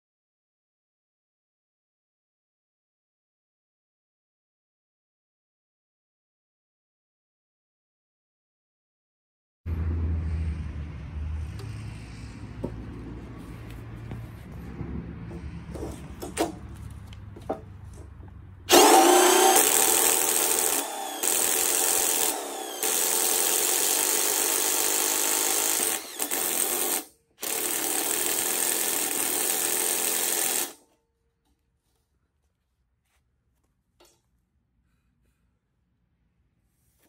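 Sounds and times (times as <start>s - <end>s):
drill cutting through steel: 18.7s - 30.8s.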